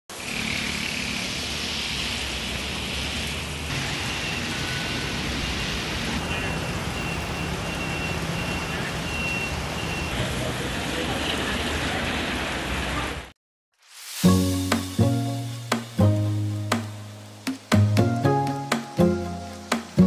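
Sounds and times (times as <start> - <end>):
passing engines humming: 0.1 - 11.1
rain hissing: 0.1 - 12.9, 13.8 - 20.0
tyres on wet road: 0.1 - 13.4
faint high beep: 5.6 - 10.2.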